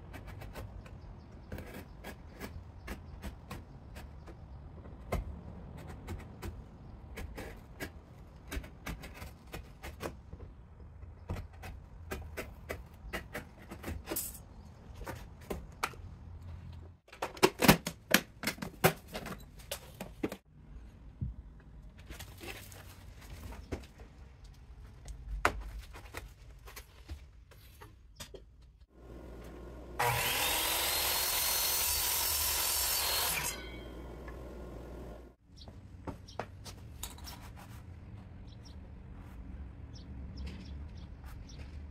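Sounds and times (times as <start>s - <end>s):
cardboard being handled and taped: 5.8s - 10.4s
chop saw cutting wood: 29.0s - 35.2s.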